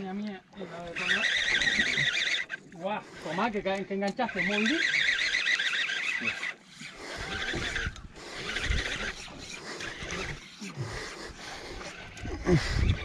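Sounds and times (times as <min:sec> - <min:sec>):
fishing reel drag buzzing: 0:00.0 - 0:13.0.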